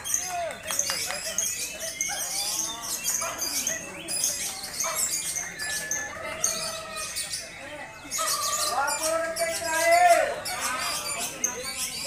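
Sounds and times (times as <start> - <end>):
lovebirds chirping and trilling: 0.0 - 12.0.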